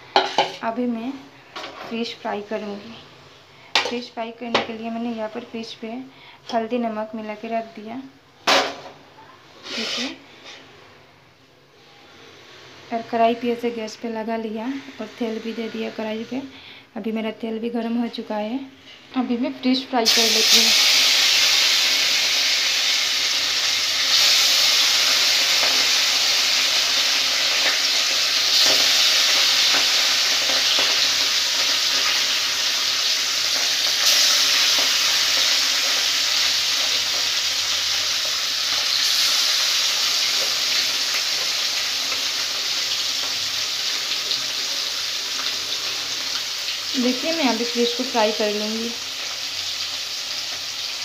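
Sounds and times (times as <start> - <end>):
fish frying in hot oil: 20.0 - 51.0.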